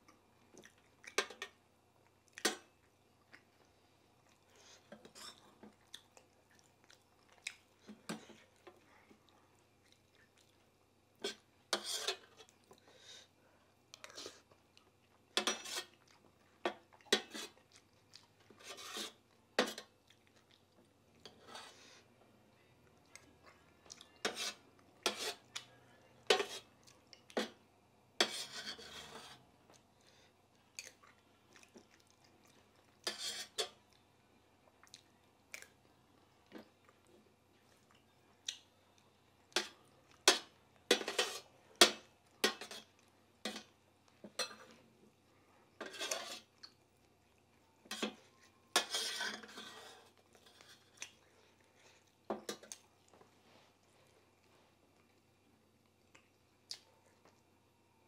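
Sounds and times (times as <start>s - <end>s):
chewing: 0.0s - 11.5s, 13.8s - 22.1s, 22.8s - 25.8s, 29.6s - 40.9s, 49.4s - 57.6s
spoon scraping a metal plate: 11.2s - 12.3s, 15.4s - 15.9s, 18.6s - 19.8s, 24.2s - 25.5s, 26.3s - 26.7s, 28.2s - 29.4s, 33.0s - 33.7s, 40.3s - 41.5s, 45.8s - 46.5s, 47.9s - 50.8s.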